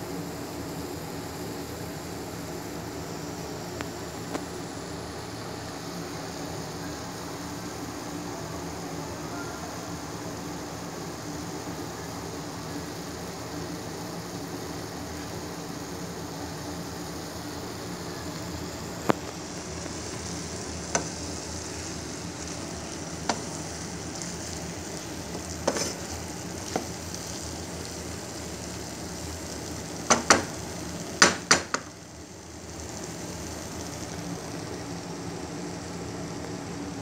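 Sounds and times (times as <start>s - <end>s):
food sizzling in frying pan: 0.0s - 37.0s
spatula knocking against pan: 30.1s - 30.5s, 31.2s - 31.9s.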